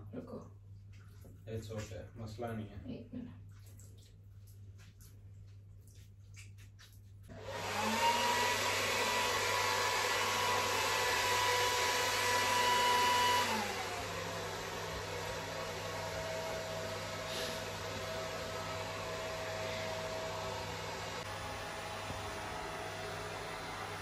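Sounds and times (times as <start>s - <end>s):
hair dryer running: 7.3s - 24.0s.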